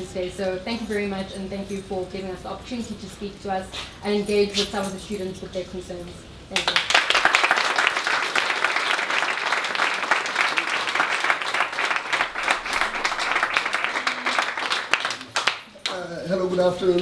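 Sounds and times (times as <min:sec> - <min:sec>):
crowd applauding: 0:06.6 - 0:16.0.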